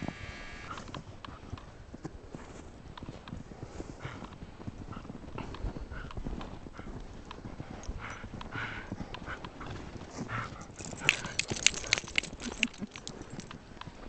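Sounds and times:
footsteps crunching in deep snow: 0.8 - 13.5
sharp clicks: 10.8 - 13.6.

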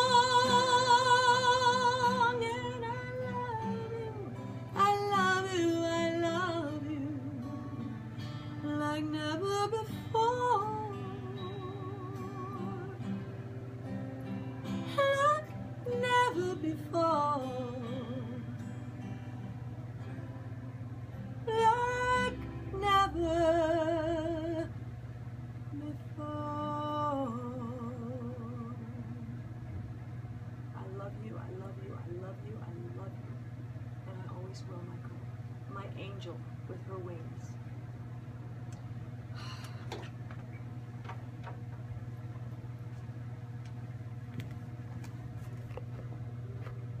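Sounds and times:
woman singing with vibrato: 0.0 - 7.8, 8.6 - 13.2, 14.9 - 18.6, 21.4 - 24.8, 25.7 - 29.4
acoustic guitar: 0.0 - 33.5
low room hum: 0.0 - 47.0.

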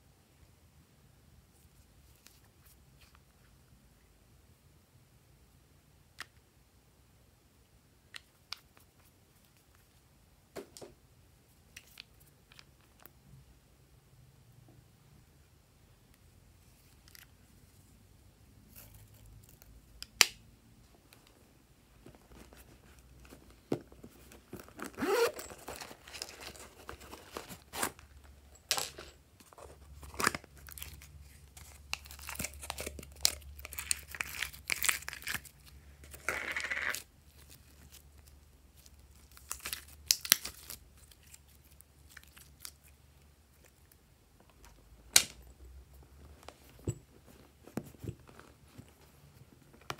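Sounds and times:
packaging rustling and crinkling: 22.0 - 36.3.

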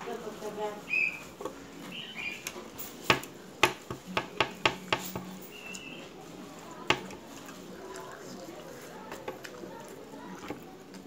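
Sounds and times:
food and fingers tapping a plate: 3.1 - 5.3, 6.9 - 7.2.

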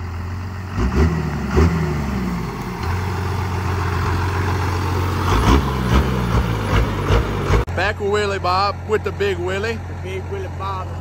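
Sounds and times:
engine revving: 0.0 - 7.9
diesel engine idling: 0.0 - 11.0.

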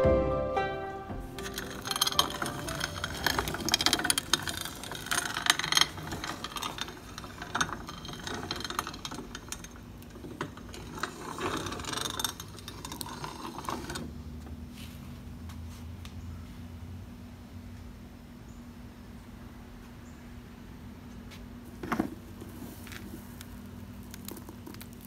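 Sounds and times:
hand-cranked corn grinder crunching: 1.3 - 14.1, 21.9 - 25.0.

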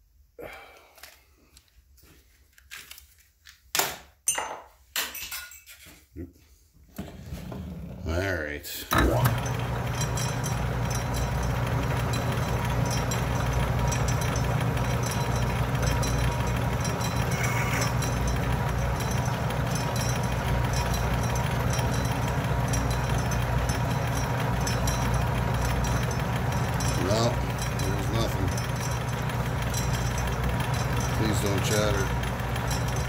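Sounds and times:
metal lathe humming: 8.9 - 33.0.

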